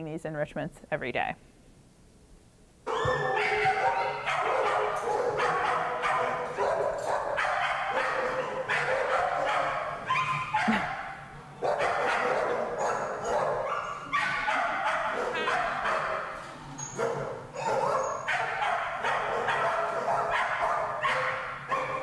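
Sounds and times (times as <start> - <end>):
dogs barking: 2.8 - 22.0.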